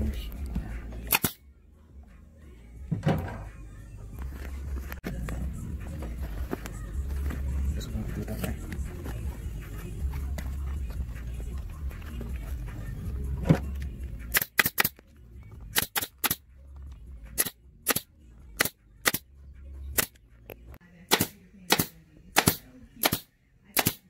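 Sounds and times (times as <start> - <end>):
staple gun firing: 1.1 - 1.4, 14.3 - 15.0, 15.7 - 16.4, 17.4 - 19.2, 21.1 - 24.0.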